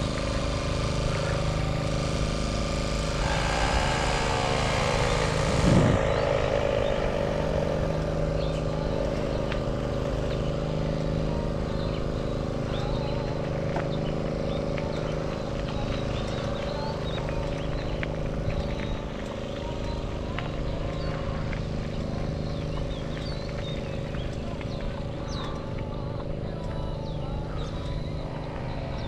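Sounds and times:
motor vehicle passing: 0:00.0 - 0:29.0
road noise while cycling: 0:00.0 - 0:29.0
wind noise: 0:03.2 - 0:07.9.

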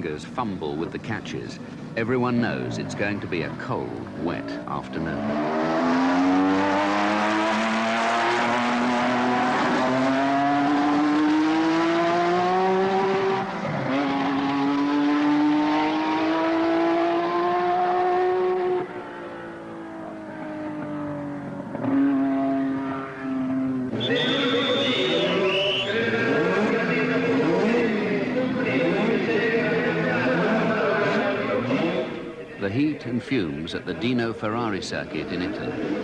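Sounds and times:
racing car engine revving: 0:04.3 - 0:32.4.

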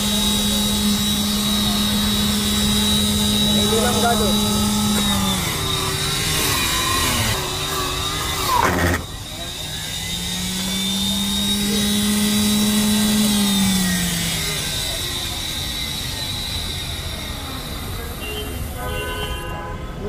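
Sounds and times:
deep motor hum: 0:00.0 - 0:15.6
juicer high whine: 0:00.0 - 0:19.7.

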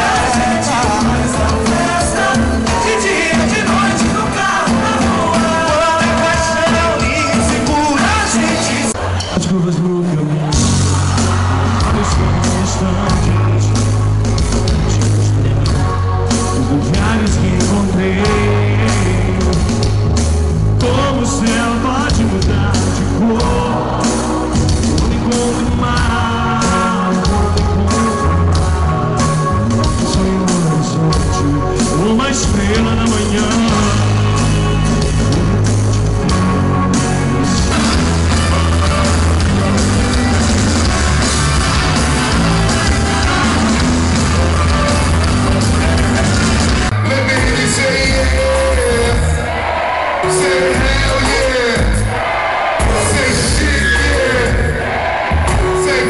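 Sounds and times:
person singing lead vocal: 0:00.0 - 0:09.0, 0:11.6 - 0:14.0, 0:14.8 - 0:20.0, 0:20.8 - 0:36.0, 0:42.3 - 0:49.6, 0:50.2 - 0:52.2, 0:52.8 - 0:56.0
rock drum beat: 0:00.0 - 0:09.4, 0:10.5 - 0:56.0
heavy bass: 0:00.0 - 0:56.0.

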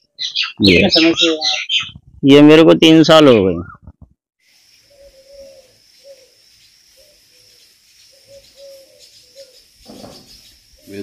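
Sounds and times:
dove cooing: 0:04.9 - 0:06.4, 0:07.0 - 0:11.0.

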